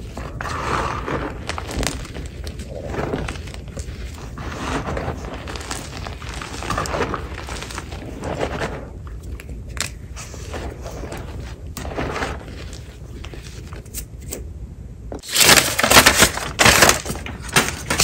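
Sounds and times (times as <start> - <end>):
hands crunching chalk: 0.0 - 14.1.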